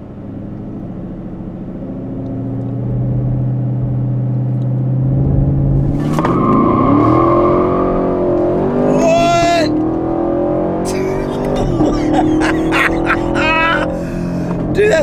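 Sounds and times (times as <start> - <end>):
car engine revving: 0.0 - 15.0
tyres squealing: 10.9 - 15.0.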